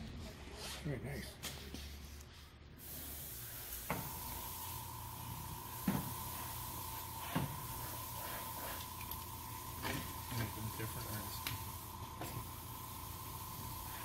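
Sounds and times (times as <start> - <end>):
airbrush compressor hissing: 2.8 - 14.0
faint steady whine: 3.3 - 14.0.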